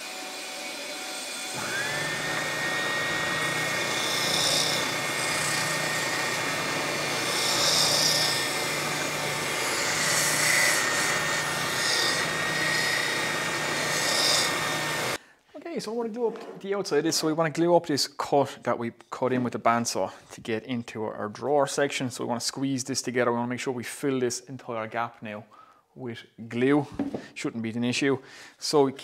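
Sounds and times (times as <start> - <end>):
spindle sander motor whine: 0.0 - 15.2
wood hissing against sanding drum: 1.3 - 15.2.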